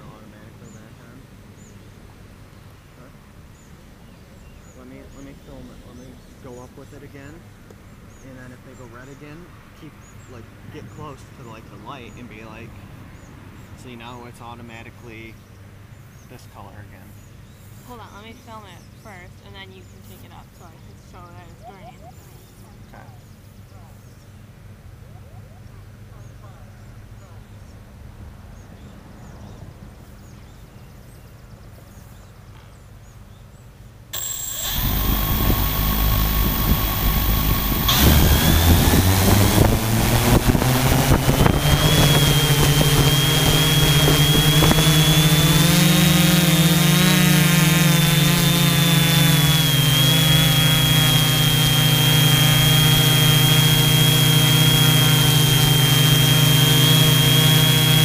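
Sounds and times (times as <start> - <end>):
drone motors whining: 34.2 - 58.0.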